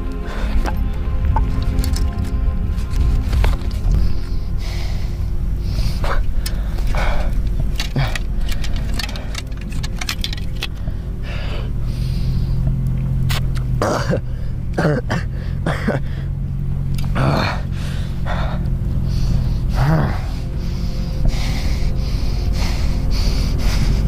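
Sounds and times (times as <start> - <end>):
low steady drone: 0.0 - 24.0
man groaning in pain: 17.0 - 17.8, 19.7 - 20.4.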